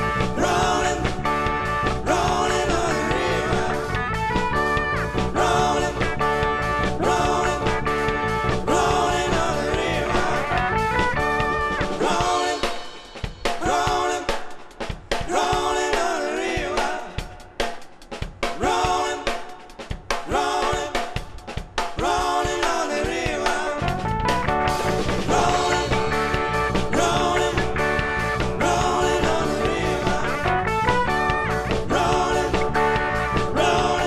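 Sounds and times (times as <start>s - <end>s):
live band playing: 0.0s - 34.0s
person singing: 0.3s - 3.9s.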